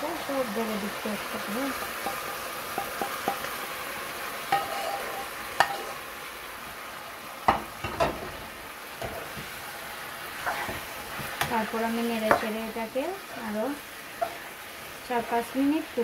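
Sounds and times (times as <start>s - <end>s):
vegetables sizzling in oil: 0.0s - 16.0s
metal knocking against pan: 7.5s - 8.3s.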